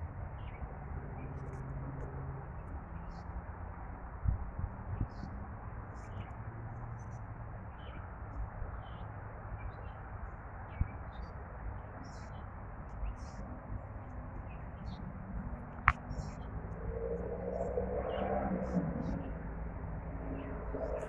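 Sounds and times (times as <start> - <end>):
city traffic hum: 0.0 - 21.0
birds chirping: 10.7 - 16.6.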